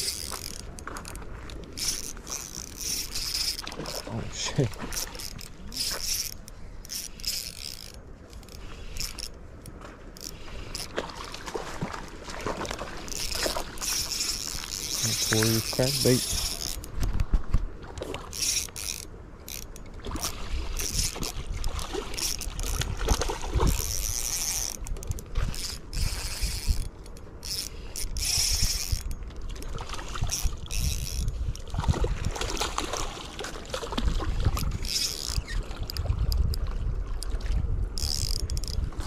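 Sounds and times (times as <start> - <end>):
fishing reel whirring and clicking: 0.0 - 11.0, 12.6 - 17.3, 18.0 - 29.4, 30.2 - 32.7, 34.5 - 36.6, 37.9 - 38.9
wind rumble on microphone: 0.0 - 39.0.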